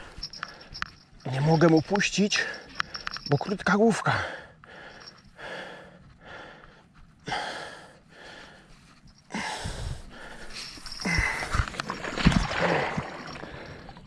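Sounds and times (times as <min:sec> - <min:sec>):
man breathing hard: 0:04.1 - 0:11.7, 0:13.1 - 0:14.0.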